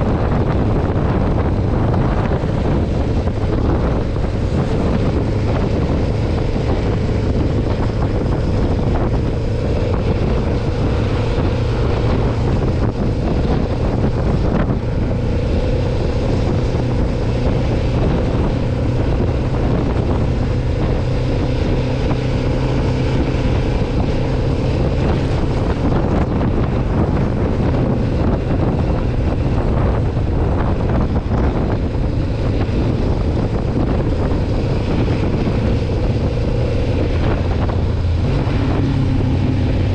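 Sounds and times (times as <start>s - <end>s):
motorcycle engine running: 0.0s - 39.9s
wind rushing over microphone: 0.0s - 39.9s.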